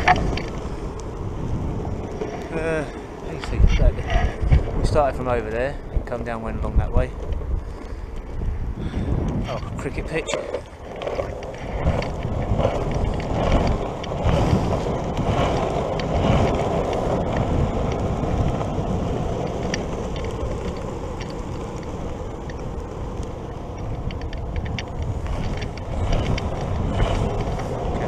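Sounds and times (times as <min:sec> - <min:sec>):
skateboard wheels rolling on tarmac: 0:00.0 - 0:28.0
wind on microphone: 0:00.0 - 0:28.0
faint ticks: 0:10.2 - 0:28.0.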